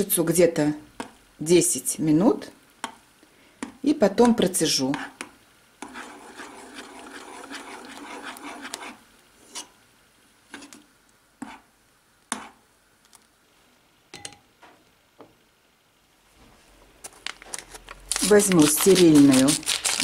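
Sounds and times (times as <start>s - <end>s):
metal spoon scraping a saucepan: 5.8s - 9.7s
spoon clinking against pot: 14.2s - 14.4s.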